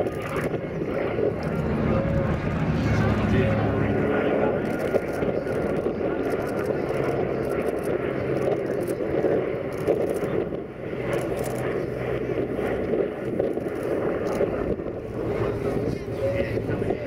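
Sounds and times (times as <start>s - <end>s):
propeller plane flying past: 0.0s - 17.0s.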